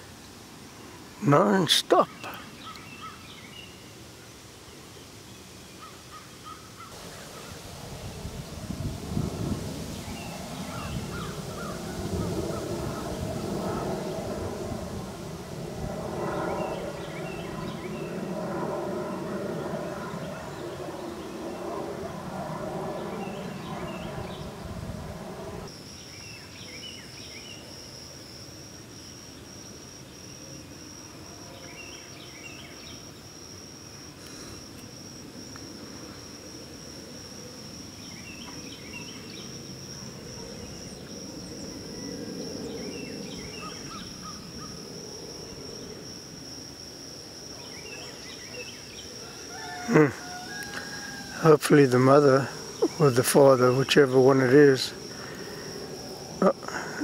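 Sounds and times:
high-pitched insect drone: 0:05.9 - 0:57.0
low rumble: 0:07.6 - 0:25.7
bird chirps: 0:29.3 - 0:33.4, 0:37.9 - 0:44.8.

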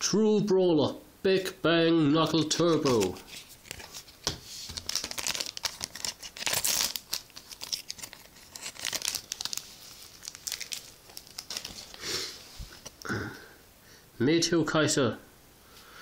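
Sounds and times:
wrapper crinkling and tearing: 0:02.6 - 0:13.1.

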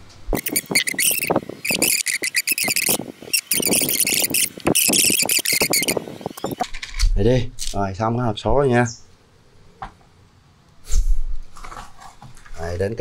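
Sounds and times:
screwdriver scraping metal: 0:00.4 - 0:07.1.

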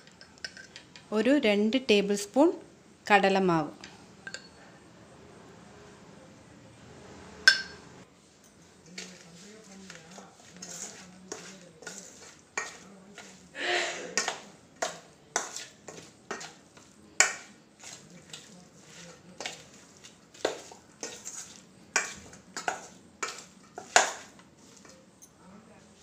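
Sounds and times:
spoon clinking and scraping bowl: 0:00.0 - 0:00.9, 0:04.2 - 0:04.6, 0:07.5 - 0:07.8, 0:08.4 - 0:13.4, 0:14.2 - 0:25.3
spoon stirring chicken in bowl: 0:08.9 - 0:13.5, 0:14.2 - 0:25.0.

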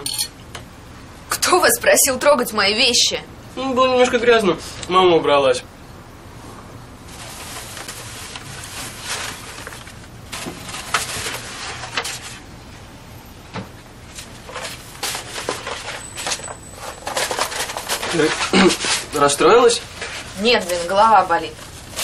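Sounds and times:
rustling: 0:06.5 - 0:12.8, 0:13.9 - 0:22.0.

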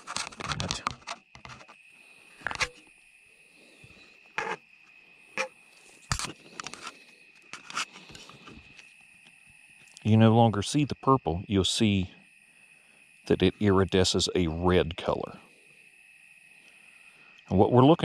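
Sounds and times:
handling scrapes and clicks: 0:00.0 - 0:01.8, 0:02.4 - 0:02.8, 0:05.4 - 0:08.8.

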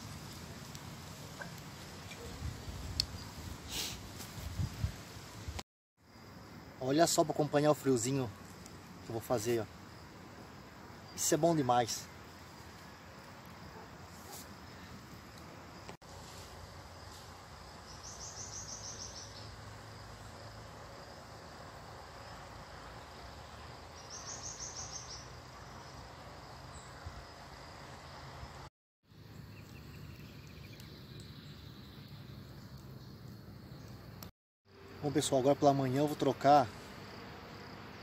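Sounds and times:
steady low hiss: 0:00.0 - 0:34.3
insect high pulsed trills: 0:17.1 - 0:27.7.

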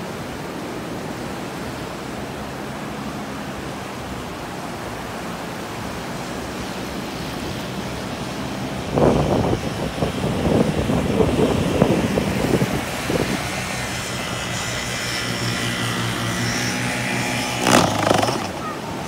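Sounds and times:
surf rushing: 0:00.0 - 0:19.0
wind: 0:00.0 - 0:19.0
paramotor engine humming: 0:12.4 - 0:19.0.

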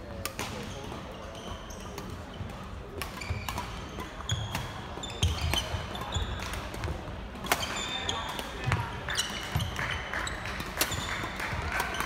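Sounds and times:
racket hitting shuttlecock: 0:03.0 - 0:09.8, 0:10.5 - 0:12.0.

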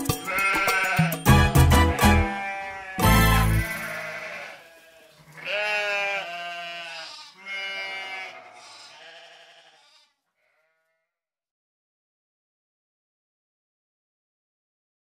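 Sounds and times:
sheep bleating: 0:00.2 - 0:11.2.

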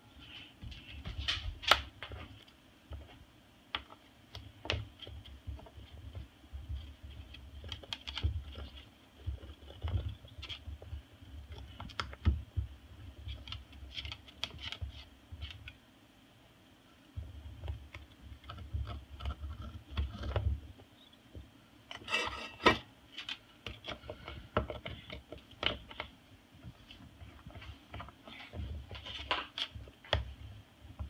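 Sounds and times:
parrot beak clicking and scraping: 0:13.2 - 0:15.8.

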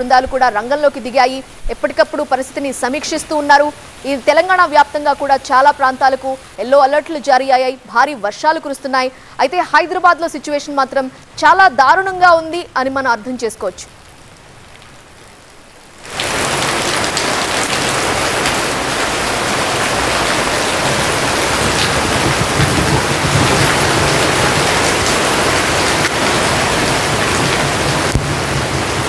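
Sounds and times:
faint background noise: 0:00.0 - 0:16.1
heavy rain pouring: 0:00.0 - 0:29.0.

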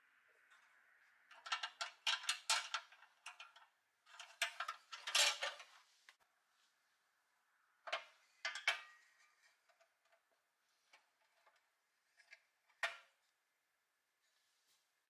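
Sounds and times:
toy metal clicks and knocks: 0:01.3 - 0:05.6.

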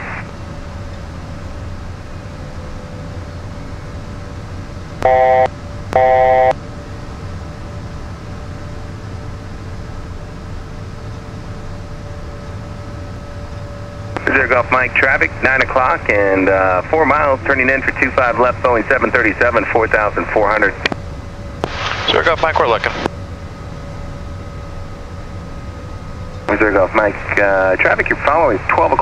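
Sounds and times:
cockpit hiss and hum: 0:00.0 - 0:29.0
short electronic beeps: 0:05.0 - 0:06.5.

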